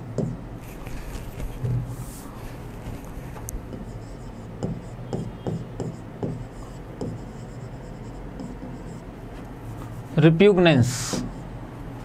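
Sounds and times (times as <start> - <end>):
pen scratching while handwriting: 2.9 - 9.1.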